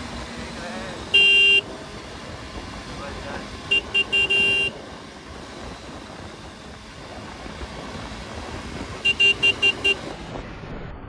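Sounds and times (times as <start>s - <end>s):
motorcycle horn honking: 1.1s - 1.7s, 3.7s - 4.8s, 9.0s - 10.1s
wind rush over microphone: 4.7s - 10.8s.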